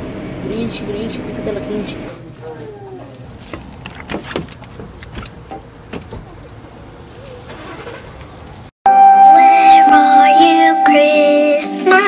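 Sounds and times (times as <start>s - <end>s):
holiday music: 8.9s - 12.0s.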